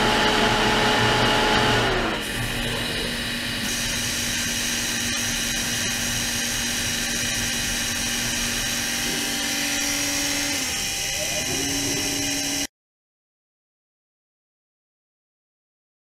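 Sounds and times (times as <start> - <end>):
ultrasonic cleaner whine: 0.0 - 12.7.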